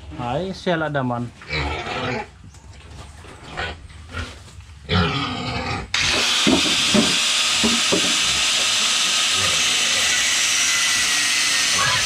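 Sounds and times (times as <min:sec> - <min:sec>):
angle grinder cutting steel pipe: 0:06.0 - 0:12.0.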